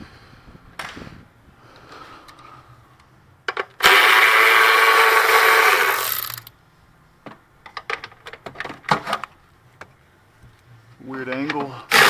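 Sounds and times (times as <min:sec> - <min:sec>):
handheld power tool running: 0:03.8 - 0:06.5.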